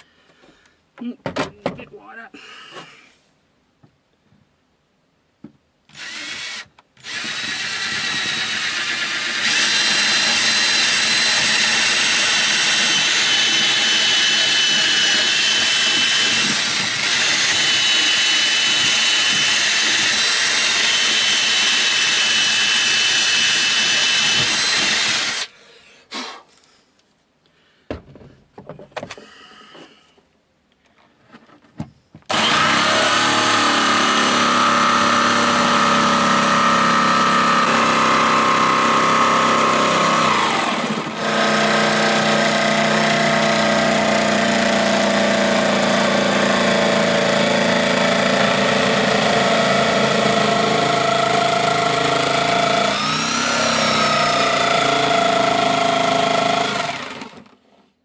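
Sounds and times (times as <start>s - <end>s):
cordless drill boring: 5.9s - 25.5s, 32.3s - 57.6s
electric jigsaw cutting: 5.9s - 25.5s, 32.3s - 57.6s.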